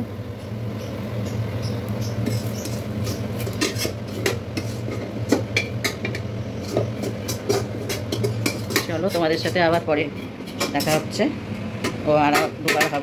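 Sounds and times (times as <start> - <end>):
spatula scraping metal pot: 2.1 - 11.1.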